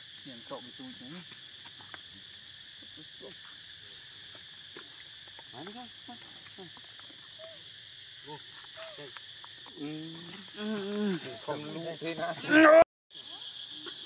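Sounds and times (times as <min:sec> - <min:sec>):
insects droning: 0:00.0 - 0:14.0
monkey calls: 0:06.1 - 0:09.2.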